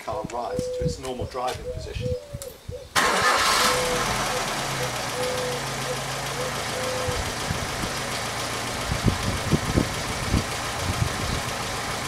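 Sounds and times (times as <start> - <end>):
car engine idling: 3.0 - 12.0.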